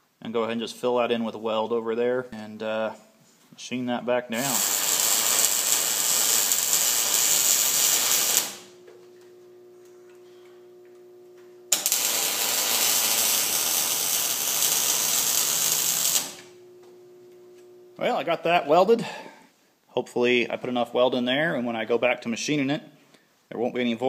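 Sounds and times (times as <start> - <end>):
welding arc crackling: 4.3 - 8.8, 11.7 - 16.6
low steady hum: 5.5 - 22.1.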